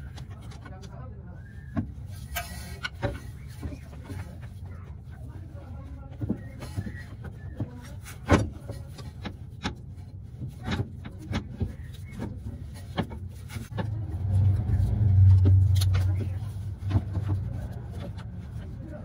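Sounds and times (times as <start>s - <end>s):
metal knocks and scraping: 1.7s - 5.2s.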